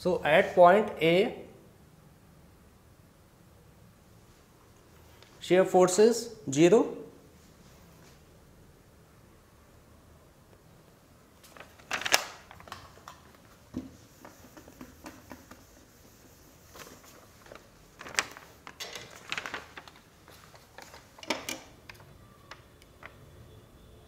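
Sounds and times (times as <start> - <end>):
marker and ruler clicks on whiteboard: 13.8 - 15.8.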